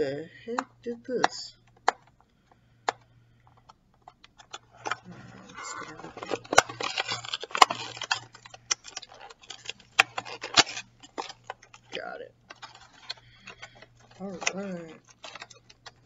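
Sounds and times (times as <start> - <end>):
tape tearing and rustling: 4.4 - 16.0
nails scratching packing tape: 4.8 - 16.0.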